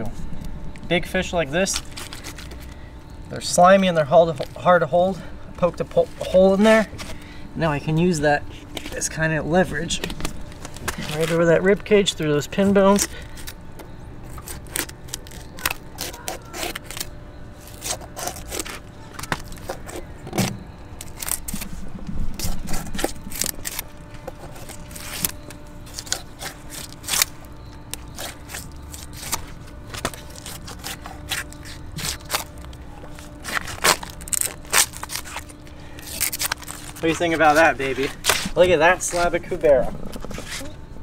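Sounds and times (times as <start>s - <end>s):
knife scraping along fish bones: 14.3s - 20.0s, 22.4s - 37.3s.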